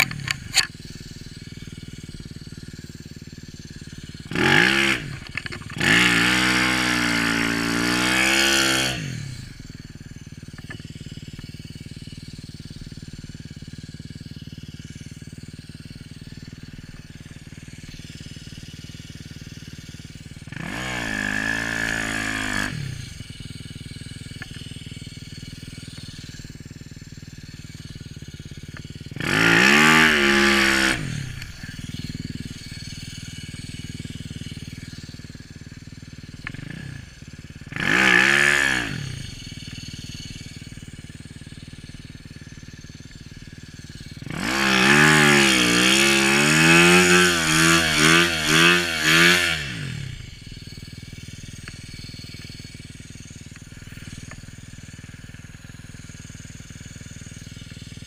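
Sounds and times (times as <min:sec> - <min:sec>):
motorbike engine idling: 0:00.0 - 0:58.0
motorbike engine revving: 0:00.0 - 0:58.0.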